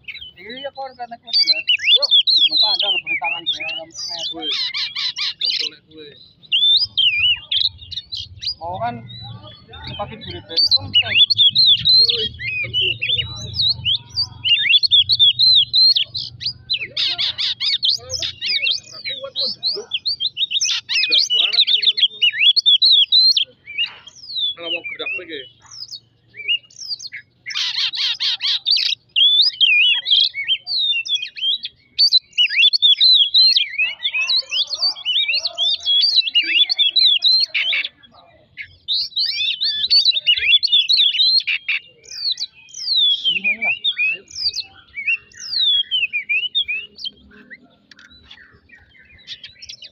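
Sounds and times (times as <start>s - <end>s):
harsh rasping bird call: 0.0s - 47.0s
bird singing high whistles: 38.8s - 49.9s.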